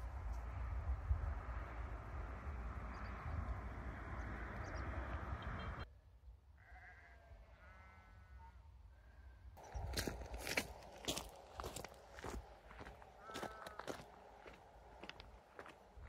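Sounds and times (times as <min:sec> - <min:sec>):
wind rumbling on microphone: 0:00.0 - 0:05.9, 0:09.6 - 0:16.0
sheep bleating: 0:06.6 - 0:08.6, 0:13.2 - 0:14.1.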